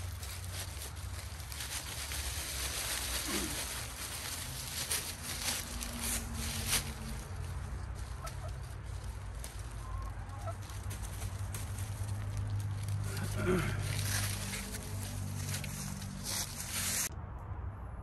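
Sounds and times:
chickens clucking: 2.8s - 14.8s.

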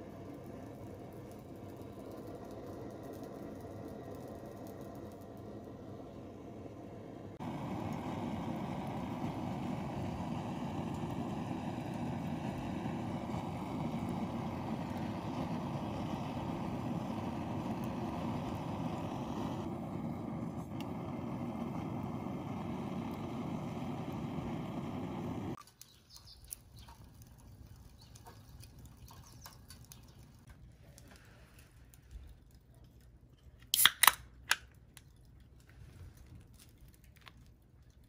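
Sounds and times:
gas torch flame rushing: 0.0s - 25.6s.

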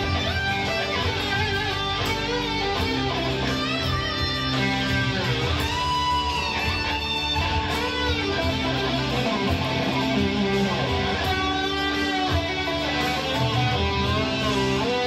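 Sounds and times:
backing track with low notes: 0.0s - 15.0s
electric guitar rock solo: 0.0s - 15.0s.

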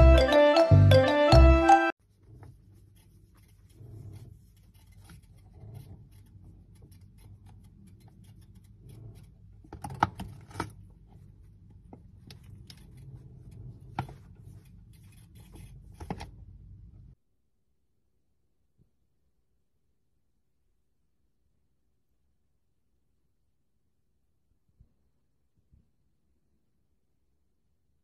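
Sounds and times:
fingers rubbing fur: 2.0s - 9.7s, 11.0s - 16.3s.

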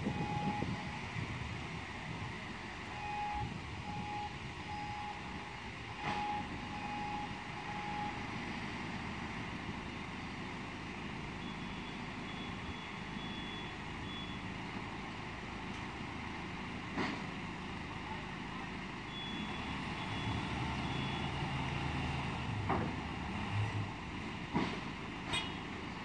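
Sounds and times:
reversing alarm beeping: 0.0s - 1.0s, 2.9s - 8.3s, 11.3s - 14.5s, 19.1s - 21.8s
construction machinery engine rumble: 0.0s - 26.0s.

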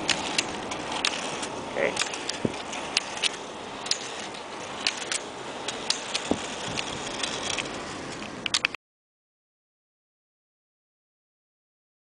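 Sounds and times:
rollerskis rolling on asphalt: 0.0s - 8.8s
ski-pole tips clicking on pavement: 0.0s - 8.8s.

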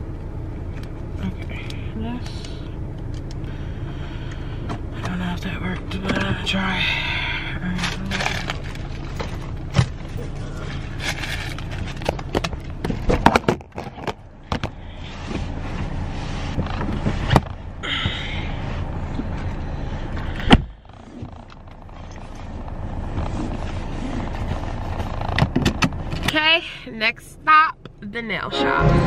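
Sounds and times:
steady low hum: 0.0s - 29.0s
knocks and rustling in car: 7.9s - 18.2s, 19.0s - 26.6s.

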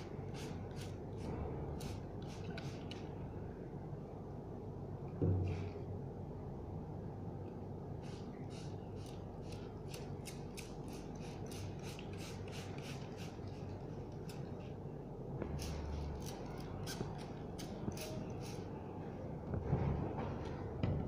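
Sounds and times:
spray bottle squirting water: 10.3s - 13.8s.

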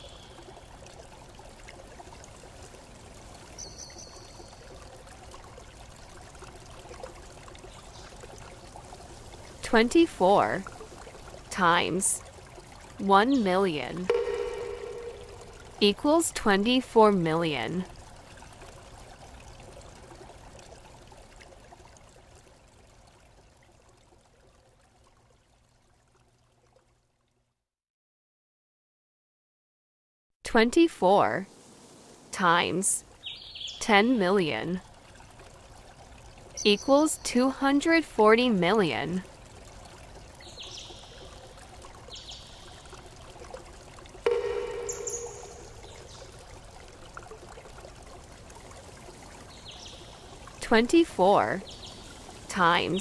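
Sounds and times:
faint steady hiss: 31.4s - 36.7s
short high whistle-like tone: 44.3s - 46.0s.

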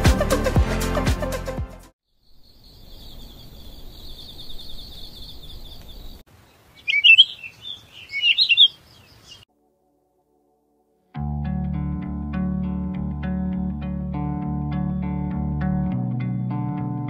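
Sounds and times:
songbirds chirping: 2.1s - 9.5s
crickets trilling: 2.2s - 9.4s.

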